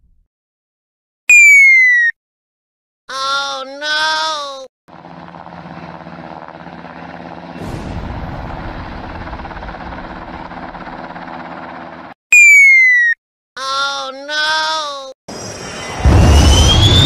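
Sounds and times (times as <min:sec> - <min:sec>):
helicopter rotor and engine: 0:04.9 - 0:12.2, 0:15.3 - 0:17.0.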